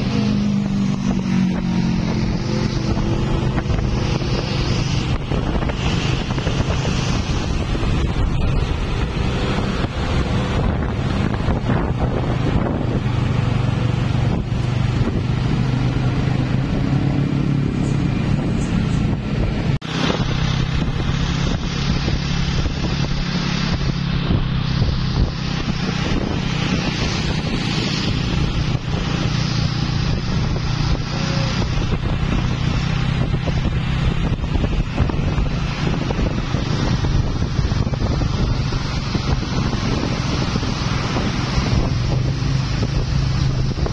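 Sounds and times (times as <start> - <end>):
vehicle engines in traffic: 0.0 - 43.9
wind on microphone: 0.0 - 43.9.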